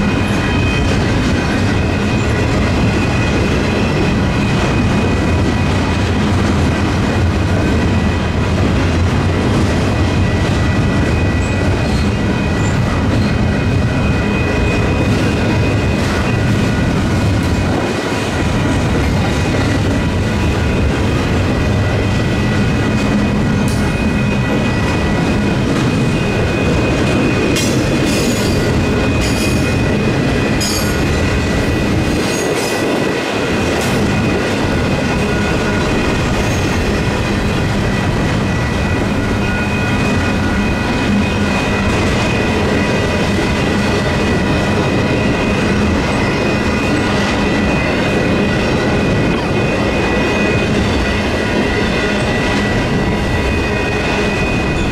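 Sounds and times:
high wheel squeals: 0.0 - 5.9, 10.3 - 16.9, 33.4 - 54.9
crossing warning bells ringing: 0.0 - 54.9
train wheels rumbling on rails: 0.0 - 54.9.

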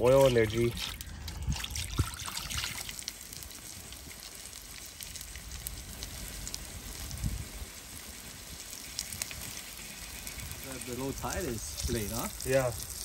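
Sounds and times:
fish sizzling in hot oil: 0.0 - 13.0.

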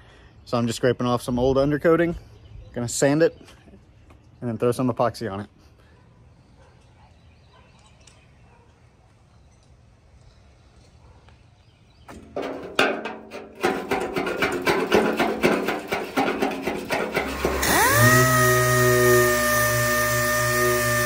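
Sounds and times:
hand scraper rasping: 13.7 - 21.0
pneumatic sander whine: 16.0 - 21.0.

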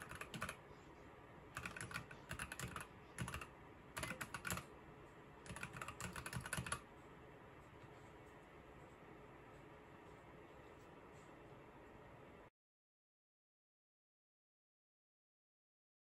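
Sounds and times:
mechanical keyboard typing: 0.0 - 0.6, 1.5 - 4.7, 5.4 - 6.9.

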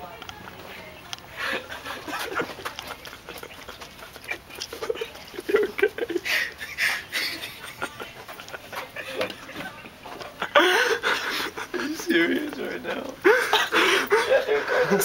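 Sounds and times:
stifled laughs and grunts: 1.4 - 9.3, 13.2 - 15.0.

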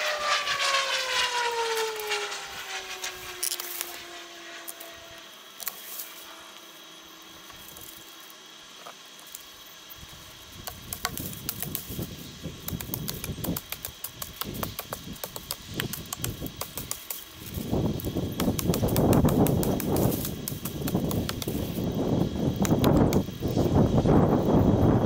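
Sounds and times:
hand tools cutting wood: 3.2 - 4.0, 10.6 - 21.8.

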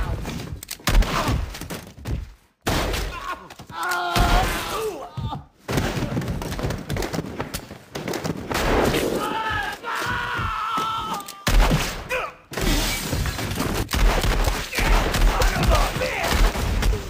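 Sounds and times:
gunfire: 8.0 - 9.3, 11.5 - 17.0
heavy gunshots with deep booms: 8.5 - 9.3, 11.5 - 17.0.

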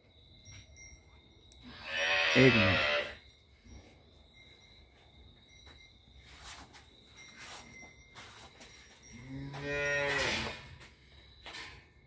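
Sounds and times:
cow mooing: 1.8 - 3.2, 9.3 - 10.6.

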